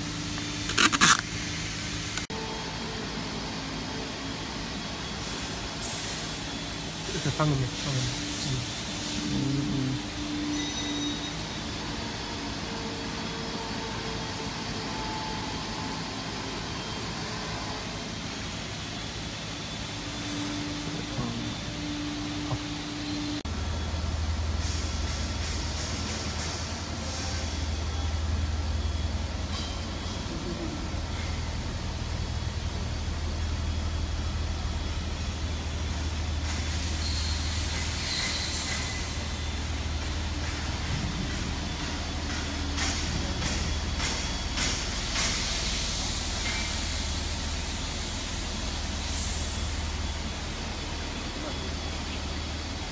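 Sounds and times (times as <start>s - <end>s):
workshop machinery drone and hiss: 0.0s - 52.9s
hiss: 5.2s - 10.1s, 42.8s - 50.4s.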